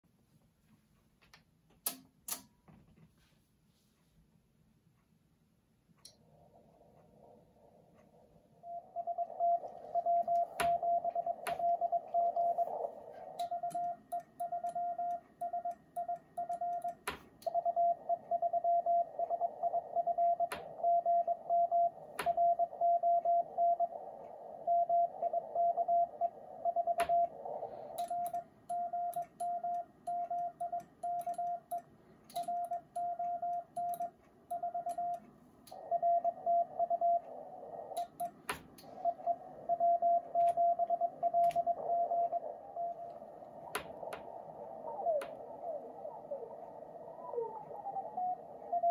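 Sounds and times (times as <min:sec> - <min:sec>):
sharp clicks: 0:01.3 - 0:02.6, 0:13.3 - 0:17.6, 0:26.1 - 0:36.4, 0:37.9 - 0:38.9
receiver hiss: 0:06.1 - 0:33.0, 0:34.5 - 0:48.9
morse code tone: 0:08.6 - 0:48.9.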